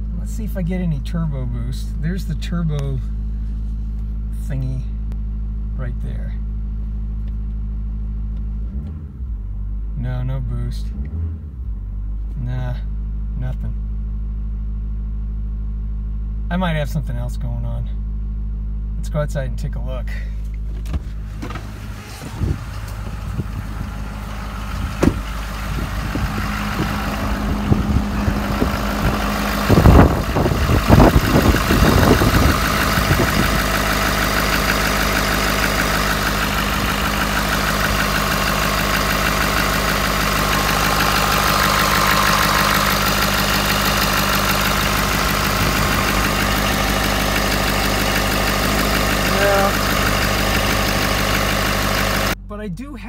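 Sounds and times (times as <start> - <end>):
diesel engine idling: 19.7 - 53.0.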